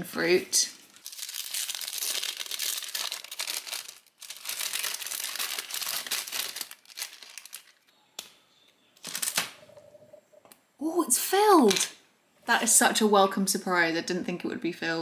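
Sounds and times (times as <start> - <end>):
paper wrapper crinkling: 0.7 - 7.9, 9.0 - 9.6.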